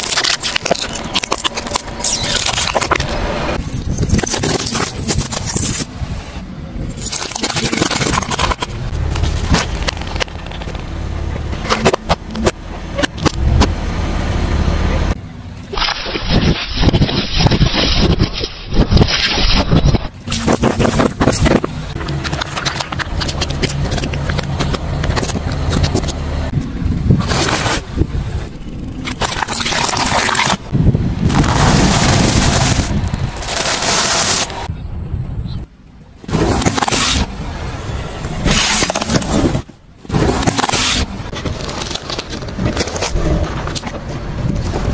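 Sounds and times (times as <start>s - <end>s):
plastic toy crunching and cracking: 0.0s - 5.9s, 6.9s - 10.9s, 15.8s - 26.2s, 28.9s - 34.6s, 38.4s - 44.9s
car rumbling: 8.0s - 15.8s, 20.1s - 44.9s
tyre crushing brittle cones: 31.3s - 34.6s, 38.4s - 44.9s.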